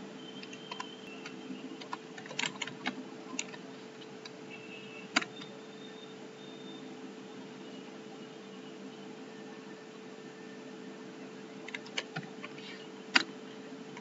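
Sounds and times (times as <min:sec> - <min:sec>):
keyboard typing: 0:00.4 - 0:04.4, 0:11.6 - 0:13.3.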